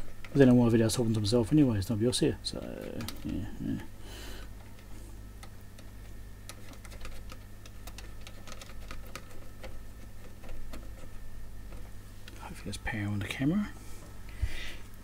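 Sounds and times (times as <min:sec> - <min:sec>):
low electrical hum: 0:00.0 - 0:15.0
wires clicking being handled: 0:02.6 - 0:03.8, 0:04.4 - 0:12.4.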